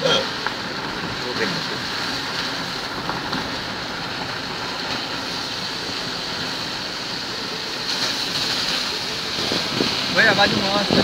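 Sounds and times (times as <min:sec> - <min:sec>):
tyre hiss on wet road: 0:00.0 - 0:11.0
wind noise: 0:01.8 - 0:11.0.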